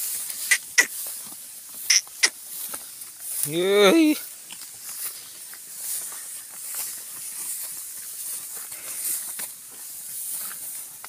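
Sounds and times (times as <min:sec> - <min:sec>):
dry grass rustling and crackling: 0:00.0 - 0:11.0.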